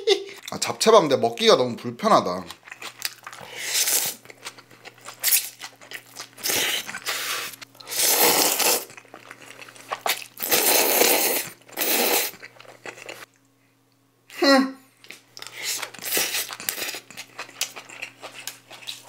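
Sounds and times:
slurping noodles: 0:06.4 - 0:08.9, 0:10.4 - 0:12.4.

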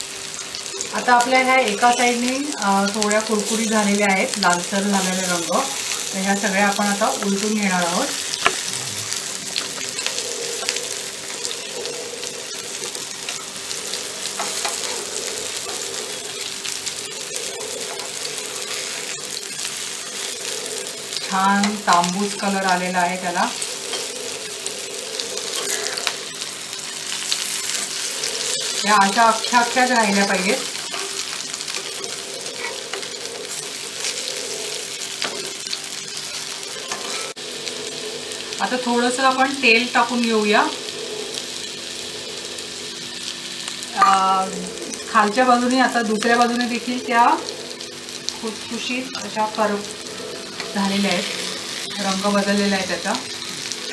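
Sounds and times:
food sizzling in oil: 0:00.0 - 0:53.9
spatula scraping pan: 0:04.8 - 0:35.7, 0:36.4 - 0:38.5.

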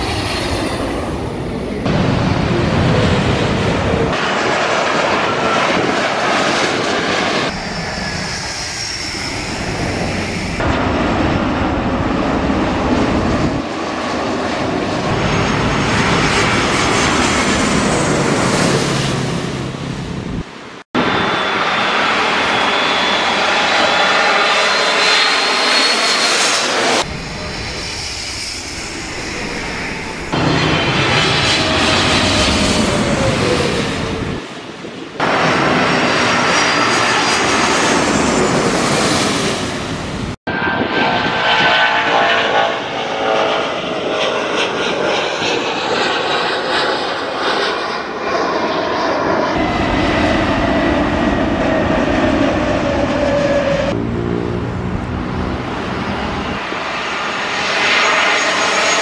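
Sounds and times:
jet airliner engine whine: 0:00.0 - 0:59.0.

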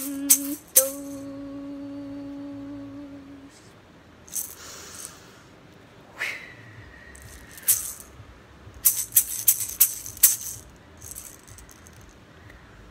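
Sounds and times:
handheld rattle shaking: 0:00.0 - 0:01.3, 0:04.3 - 0:05.1, 0:07.2 - 0:08.2, 0:08.8 - 0:12.2
high held tone: 0:00.0 - 0:03.5.

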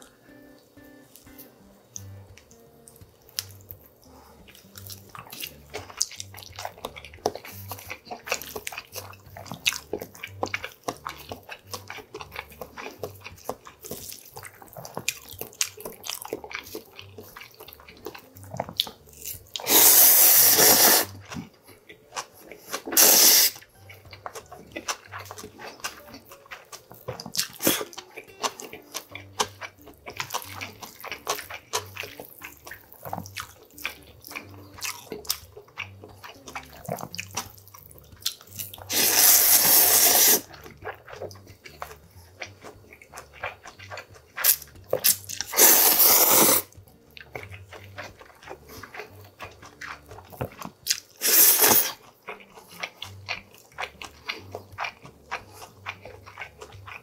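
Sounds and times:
chewing with wet mouth clicks: 0:01.1 - 0:57.0
loud noodle slurps: 0:19.6 - 0:21.2, 0:22.8 - 0:23.6, 0:38.9 - 0:40.6, 0:44.4 - 0:46.8, 0:51.2 - 0:52.0.

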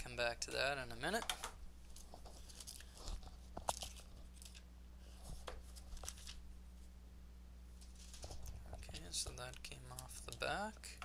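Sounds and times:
plastic film crinkling: 0:01.9 - 0:04.6, 0:05.4 - 0:06.4.

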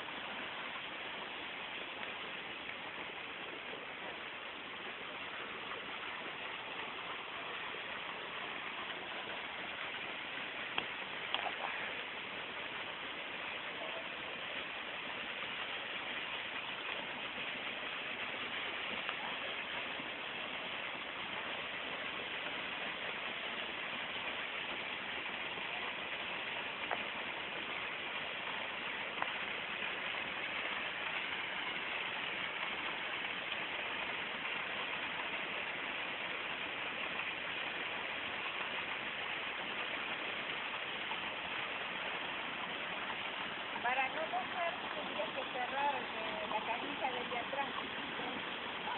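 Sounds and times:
waterfall pouring onto rocks: 0:00.0 - 0:48.9
faint clicks: 0:10.7 - 0:11.6.

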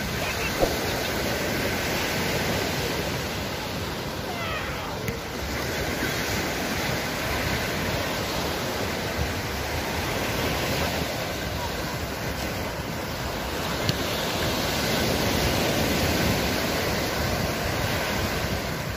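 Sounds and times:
waves washing up beach: 0:00.0 - 0:18.9.

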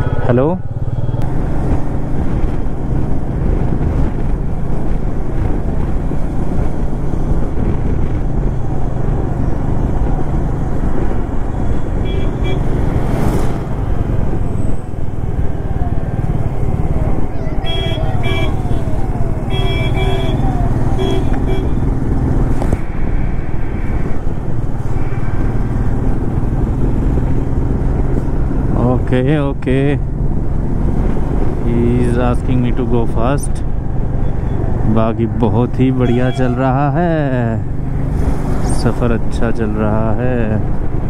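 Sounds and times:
vehicle horn toots: 0:12.0 - 0:12.7, 0:17.5 - 0:21.9, 0:36.0 - 0:36.7.

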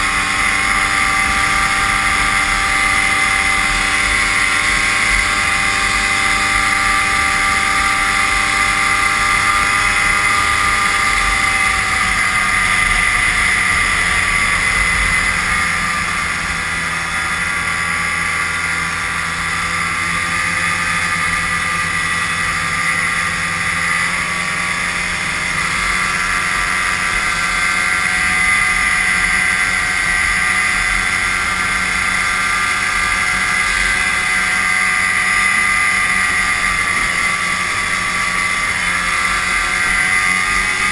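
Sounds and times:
snowmobile engine running: 0:00.0 - 0:40.9.

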